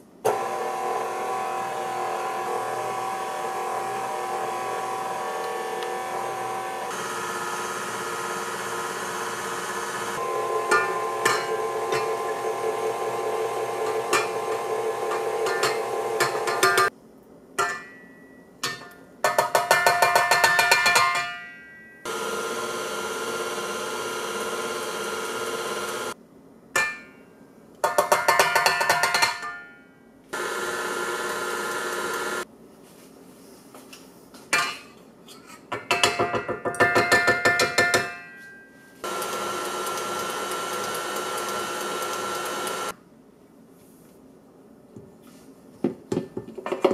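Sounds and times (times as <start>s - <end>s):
stand mixer motor whine: 0.3s - 16.7s, 22.1s - 26.2s, 30.4s - 32.4s, 39.0s - 42.9s.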